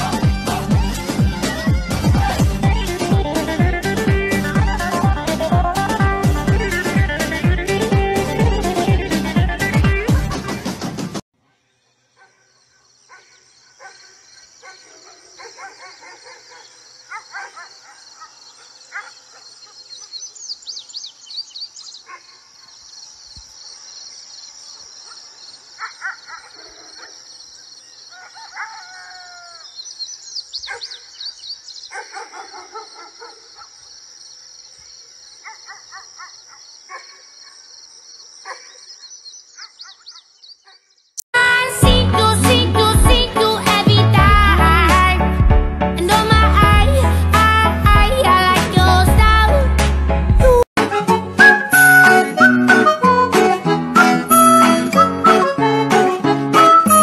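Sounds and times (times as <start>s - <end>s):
birds chirping and calling: 11.6s - 41.2s.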